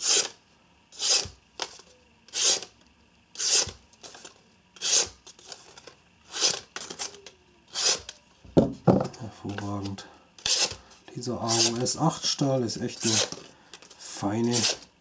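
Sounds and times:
knife slicing paper: 12.9s - 13.4s.

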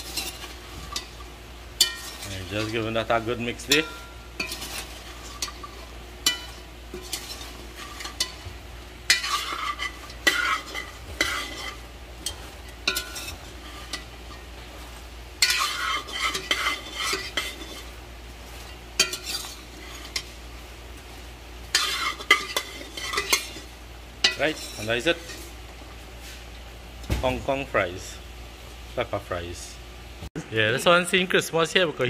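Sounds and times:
metal spoon scraping a metal pot: 0.0s - 14.5s, 15.4s - 18.0s, 18.6s - 20.4s, 21.7s - 25.6s.

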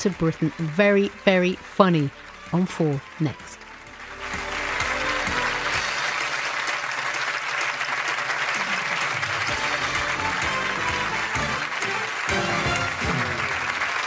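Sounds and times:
studio audience applauding: 0.0s - 14.0s
theme music: 0.0s - 14.0s.

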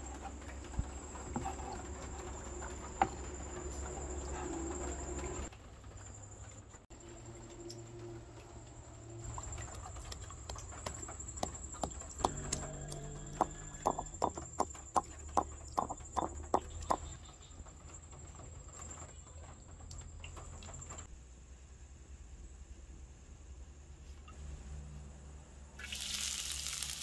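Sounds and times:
stone pestle pounding in mortar: 10.8s - 17.1s.

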